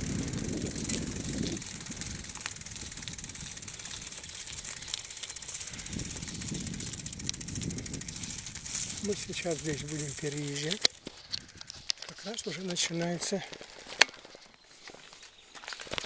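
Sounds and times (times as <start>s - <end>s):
fast even ticking: 0.0s - 13.0s
bike tyres rumbling on dirt: 0.0s - 16.0s.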